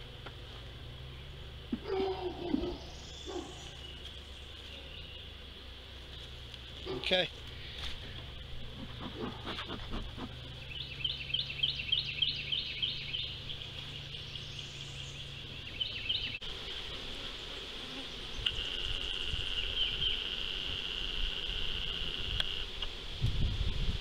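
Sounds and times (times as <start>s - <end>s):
bees buzzing: 0.0s - 24.0s.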